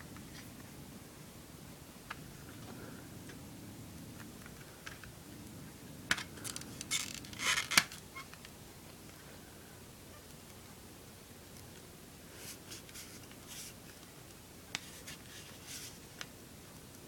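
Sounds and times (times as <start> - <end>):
plastic case clicks and creaks: 6.1 - 8.5.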